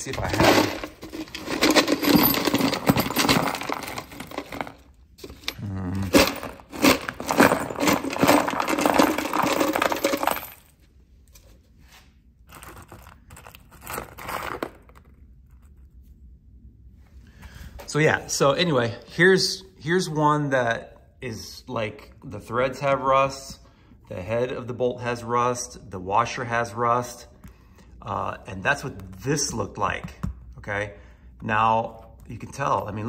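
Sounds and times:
metal hardware clinking: 0:00.0 - 0:05.6, 0:06.2 - 0:10.7.

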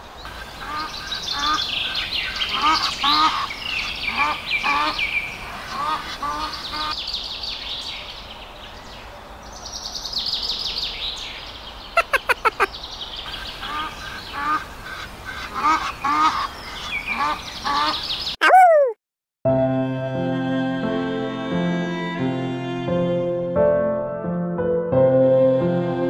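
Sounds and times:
ducks peeping: 0:00.2 - 0:07.0, 0:11.9 - 0:18.9
ducks quacking: 0:00.4 - 0:07.0, 0:12.0 - 0:12.7, 0:13.3 - 0:18.6.

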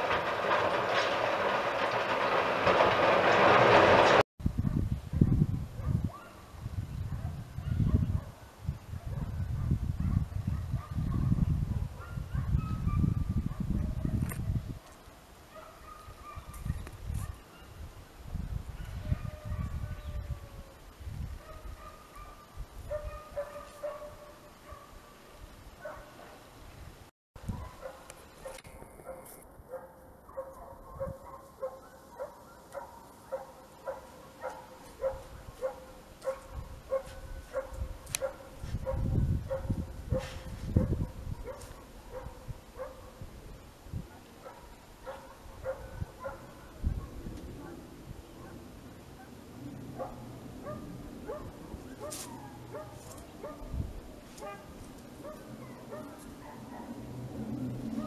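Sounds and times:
dog yipping: 0:15.5 - 0:17.7, 0:50.0 - 0:53.7.

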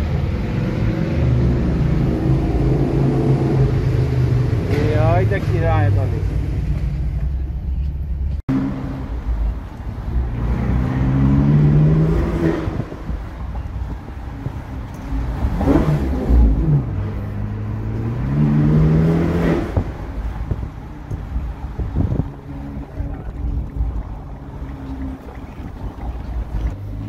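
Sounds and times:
car engine revving through gears: 0:10.1 - 0:13.2, 0:14.9 - 0:27.0.

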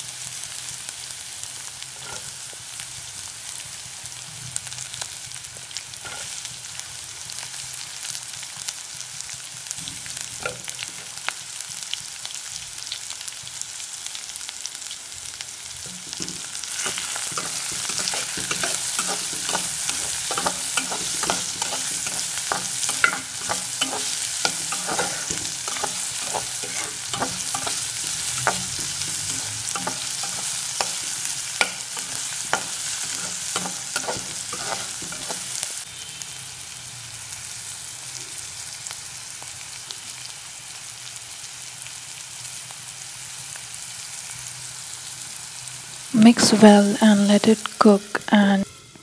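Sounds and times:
vegetables sizzling in oil: 0:00.0 - 0:49.0
spatula scraping a pan: 0:06.0 - 0:06.5, 0:15.9 - 0:35.8.

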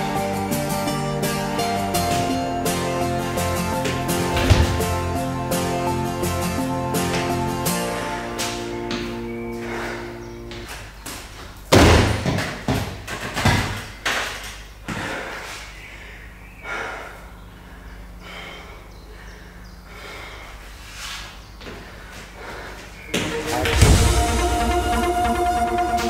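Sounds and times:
smaller thumps and knocks: 0:03.9 - 0:05.1
loud heavy thud: 0:04.1 - 0:05.2.

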